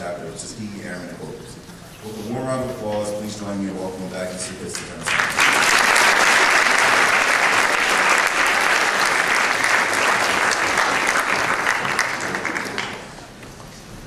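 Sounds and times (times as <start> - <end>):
audience applauding: 5.0 - 13.3.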